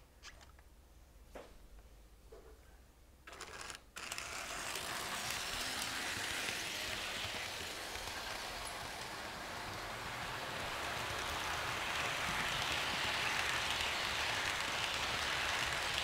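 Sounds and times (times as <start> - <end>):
model train rolling hiss: 4.0 - 16.0.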